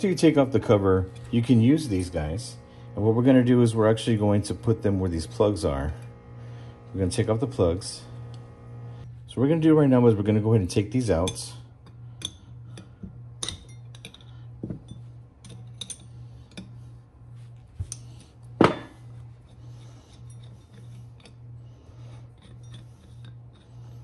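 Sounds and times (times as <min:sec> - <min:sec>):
low pulsing hum: 0:00.0 - 0:24.0
wrench clinking on metal fittings: 0:11.2 - 0:16.7, 0:22.4 - 0:23.6.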